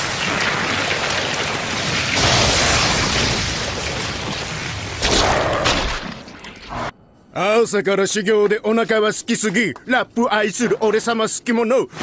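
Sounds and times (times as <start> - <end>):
explosion rushing rumble: 0.0 - 5.9.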